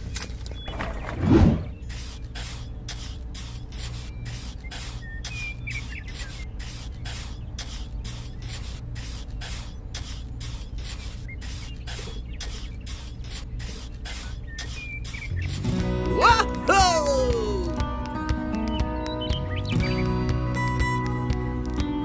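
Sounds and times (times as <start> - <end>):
trowel scraping wet cement: 0.8 - 15.8.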